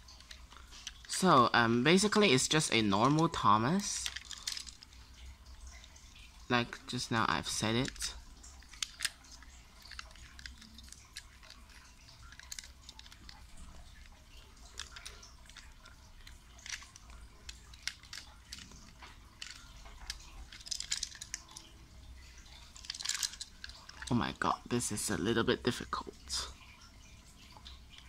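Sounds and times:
plastic packaging crinkling: 2.0s - 6.3s, 7.8s - 21.7s, 22.4s - 24.2s.

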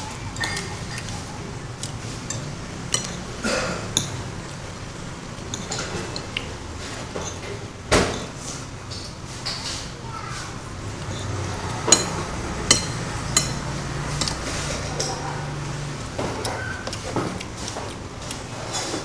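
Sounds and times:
cutlery clinking on ceramic plate: 11.1s - 14.4s.

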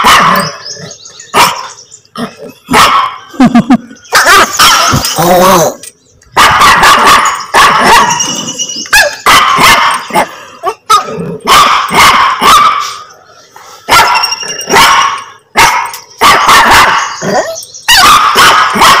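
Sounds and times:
small dog barking: 0.0s - 0.5s, 1.4s - 1.7s, 2.7s - 3.2s, 4.2s - 5.0s, 6.4s - 8.2s, 9.0s - 12.9s, 13.9s - 19.0s.

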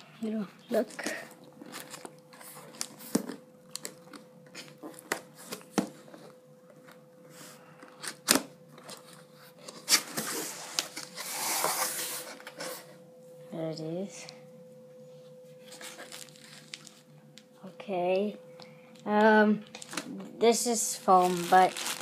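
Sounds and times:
plastic wrapping crinkling: 0.8s - 5.7s, 15.7s - 17.1s, 19.6s - 20.2s, 20.8s - 22.0s.

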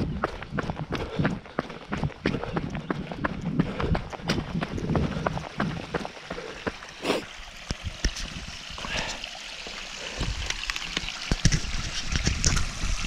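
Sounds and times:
stream trickling over rocks: 2.7s - 13.0s.

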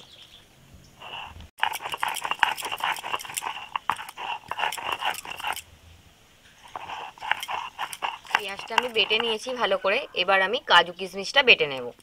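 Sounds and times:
grinding stone crushing onion: 1.0s - 5.7s, 6.6s - 12.0s.

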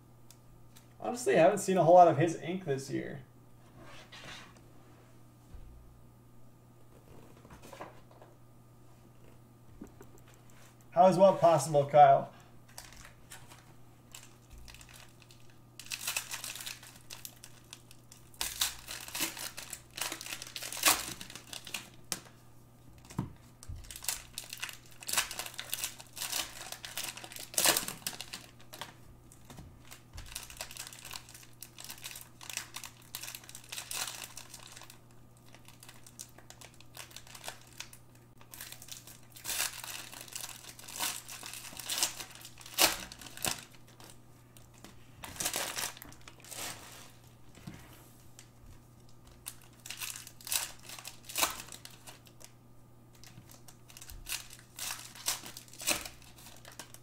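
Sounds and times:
card packs crinkling: 9.8s - 22.4s, 23.0s - 47.7s, 48.3s - 57.0s
sharp foil crackles: 12.7s - 22.3s, 23.8s - 47.3s, 48.4s - 52.5s, 53.1s - 57.0s.

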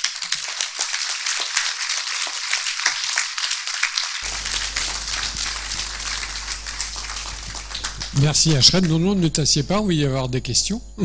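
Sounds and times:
audience applauding: 0.0s - 9.2s
low steady hum: 4.2s - 11.0s.

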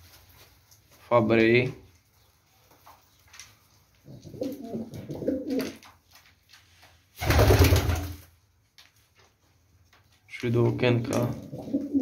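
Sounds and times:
pigeons cooing: 4.0s - 5.9s, 11.3s - 12.0s.

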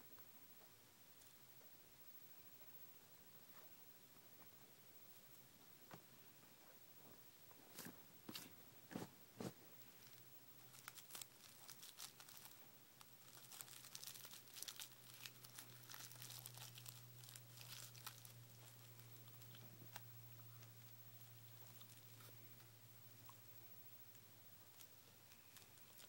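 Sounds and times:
rolling paper crinkling: 7.8s - 22.6s, 24.6s - 26.0s.

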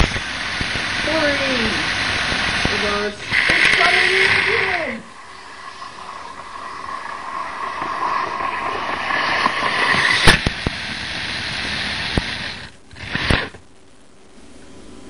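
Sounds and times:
model train motor whirring: 9.8s - 13.6s.

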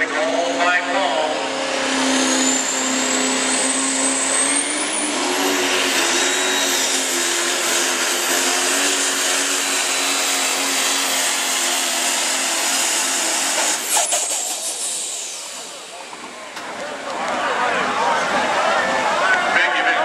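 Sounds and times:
diesel truck engine under load: 0.0s - 20.0s
turbocharger whistle: 1.8s - 10.6s, 13.5s - 15.8s.

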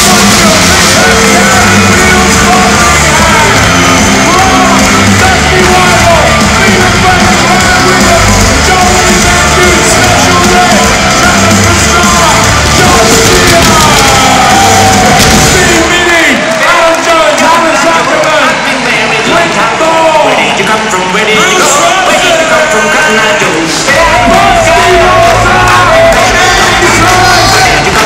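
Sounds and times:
loud rock music with heavy bass: 0.0s - 16.0s, 23.8s - 28.0s
people yelling and shouting: 0.0s - 28.0s.

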